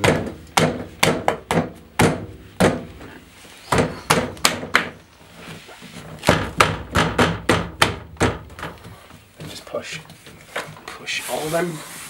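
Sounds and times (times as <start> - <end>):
plastic poppers thudding into door: 6.2 - 8.9.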